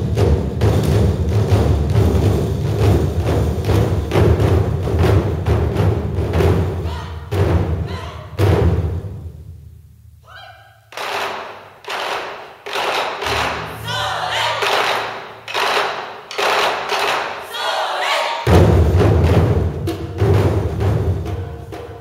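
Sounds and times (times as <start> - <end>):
barrel drums struck in unison: 0.0 - 9.7, 18.5 - 22.0
drummers shouting: 6.6 - 8.5, 10.3 - 18.5.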